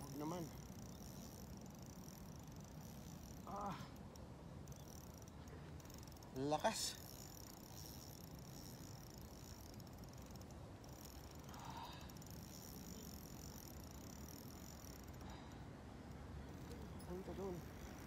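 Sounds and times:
fishing reel drag buzzing: 0.0s - 18.0s.

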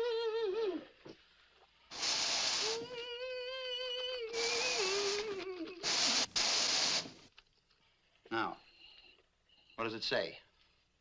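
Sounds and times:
hissing breath: 1.9s - 3.0s, 4.3s - 7.2s.

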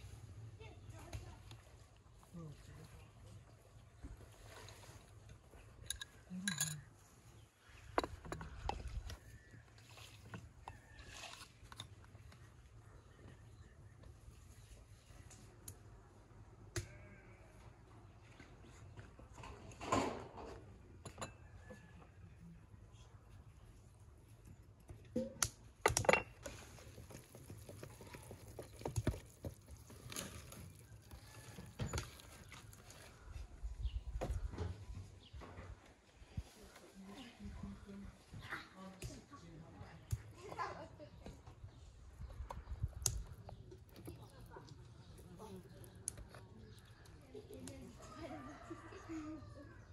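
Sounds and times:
glass bowls clinking: 5.8s - 6.9s
wooden spoon scraping in clay jar: 5.8s - 6.9s, 7.8s - 12.1s, 26.4s - 33.2s.

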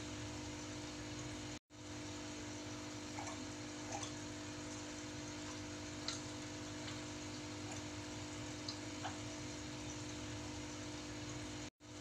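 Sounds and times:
aquarium pump humming: 0.0s - 12.0s
water trickling into tank: 0.0s - 12.0s
water drips: 2.6s - 11.7s.

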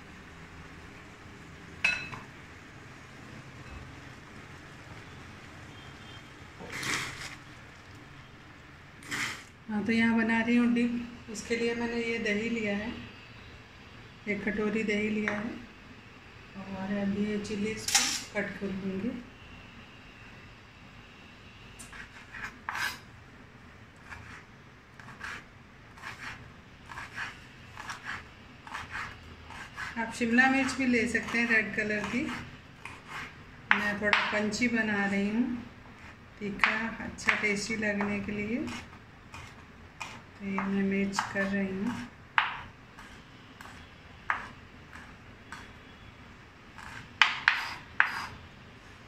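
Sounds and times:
knife chopping on wooden board: 38.0s - 42.7s, 43.6s - 44.5s, 46.8s - 48.3s.

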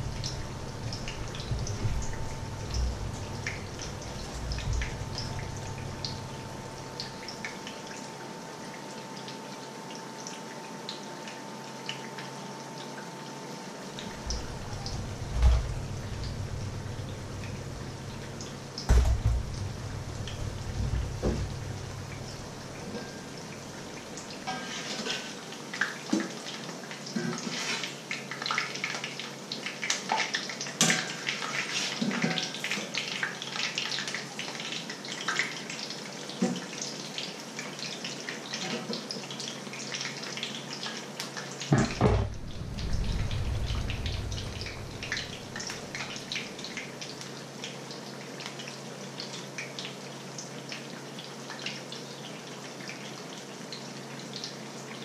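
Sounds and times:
low rumble: 0.0s - 7.2s, 14.1s - 22.8s, 41.9s - 46.2s
food sizzling in hot oil: 0.0s - 8.4s, 13.8s - 55.0s
loud knock: 18.9s - 19.8s, 41.7s - 43.8s.

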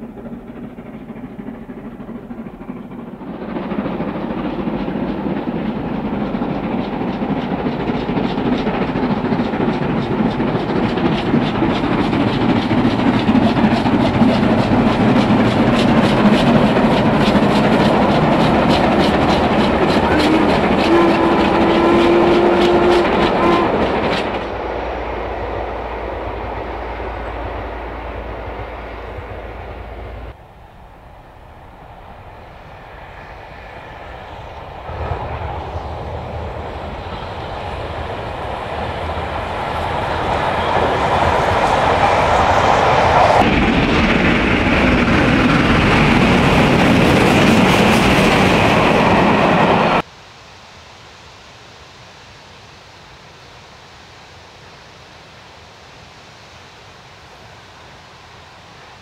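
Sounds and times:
wheels clicking over rail joints: 0.0s - 24.6s
distant steam train working: 0.0s - 59.0s
steam train passing: 0.0s - 59.0s.

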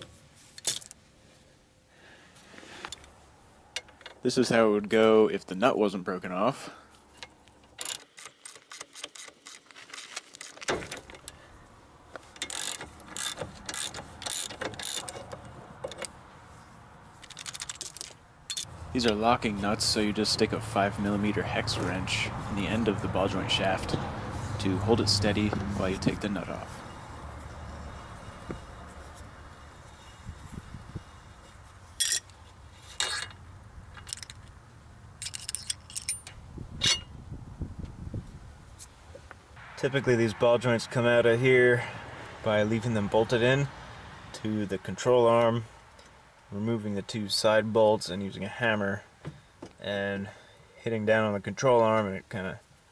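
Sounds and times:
ratcheting wrench clicking: 7.6s - 11.4s, 12.3s - 16.1s, 17.2s - 18.7s
metal clinking against tool: 32.0s - 33.4s, 35.2s - 37.1s.

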